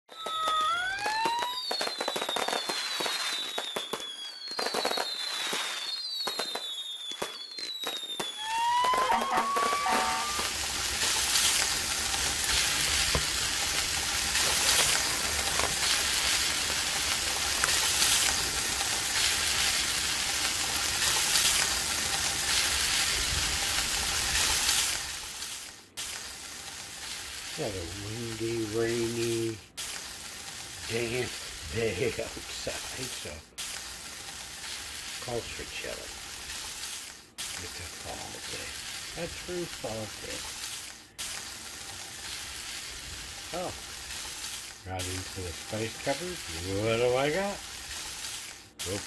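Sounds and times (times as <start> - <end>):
fireworks crackling sizzle: 0.0 - 49.0
whistling fireworks: 0.0 - 49.0.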